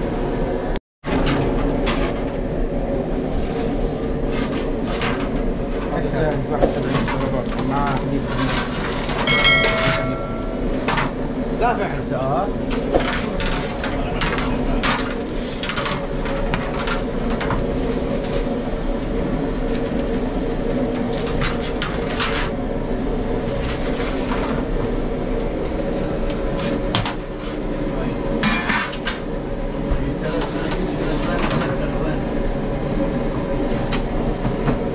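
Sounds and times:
steady hum: 0:00.0 - 0:34.9
trays and dishes clattering: 0:08.3 - 0:11.1.

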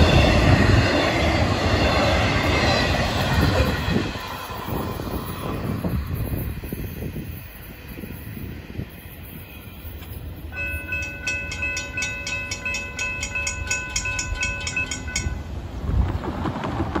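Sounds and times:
crossing bell ringing: 0:09.7 - 0:15.7.

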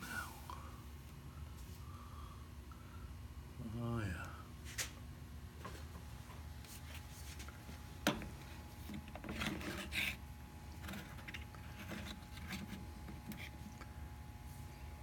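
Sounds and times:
faint steady hum: 0:00.0 - 0:15.0
rubbing and light knocking: 0:08.1 - 0:13.8.

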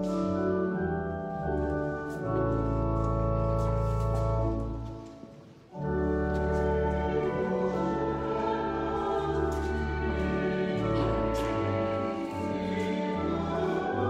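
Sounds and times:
choir singing with organ: 0:05.8 - 0:14.0.

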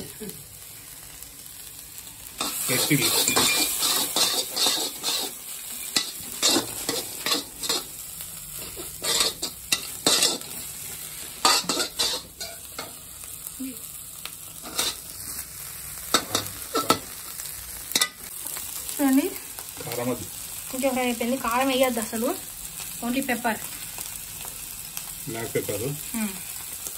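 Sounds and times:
frying sizzle: 0:00.0 - 0:26.9
spatula scraping metal wok: 0:02.4 - 0:13.0, 0:14.6 - 0:15.0.

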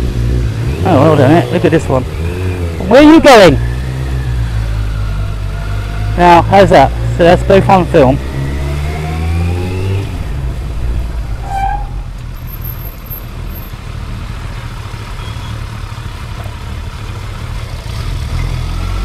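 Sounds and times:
short high squeak: 0:11.2 - 0:13.0.

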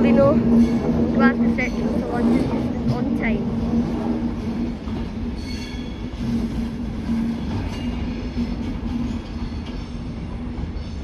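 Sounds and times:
electric train rumbling: 0:00.0 - 0:11.0
train wheel squeal: 0:05.0 - 0:11.0.

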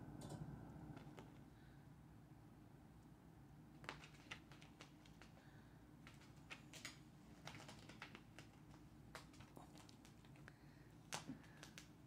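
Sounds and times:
low steady hum: 0:00.0 - 0:04.2.

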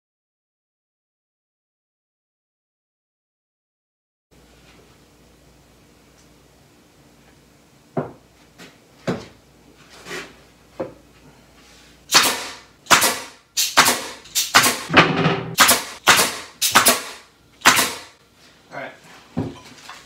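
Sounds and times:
nail gun shots: 0:12.1 - 0:18.2.

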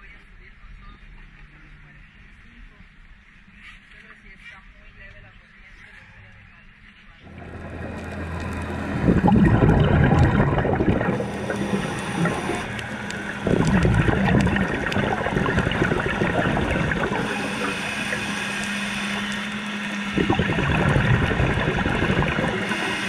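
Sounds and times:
underwater bubbles gurgling: 0:07.3 - 0:23.0.

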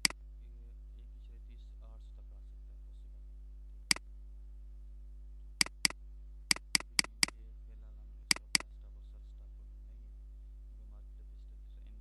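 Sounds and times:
faint electrical hum: 0:00.0 - 0:12.0
mouse button clicking: 0:05.6 - 0:07.4, 0:08.3 - 0:08.6.

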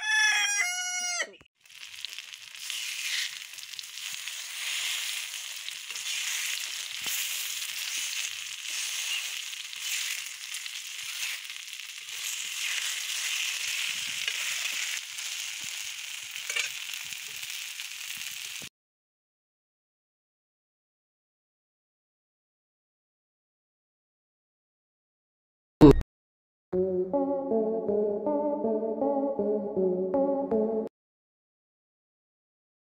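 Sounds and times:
food sizzling in oil: 0:01.6 - 0:18.7
metal spatula clicks and scrapes: 0:16.5 - 0:16.8.

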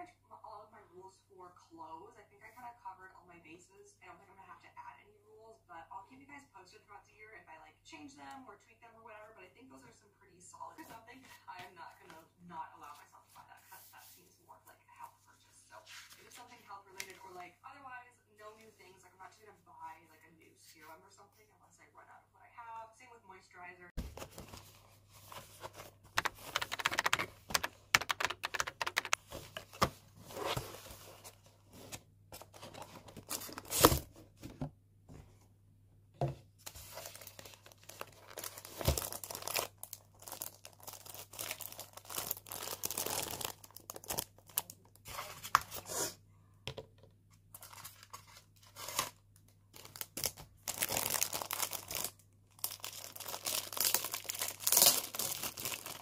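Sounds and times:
box and polystyrene handled: 0:29.2 - 0:34.1, 0:36.7 - 0:45.9, 0:49.8 - 0:56.0
plastic bags crinkling and tearing: 0:36.8 - 0:45.0, 0:48.7 - 0:56.0.

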